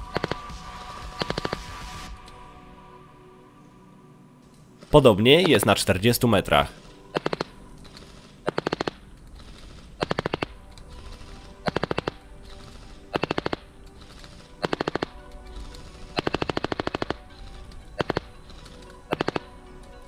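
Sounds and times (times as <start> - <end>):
quiet background music: 0.0 - 20.0
airsoft gun firing bursts: 0.1 - 0.5, 1.1 - 1.8, 7.1 - 10.6, 11.6 - 15.2, 16.1 - 17.3, 18.0 - 18.4, 19.1 - 19.5.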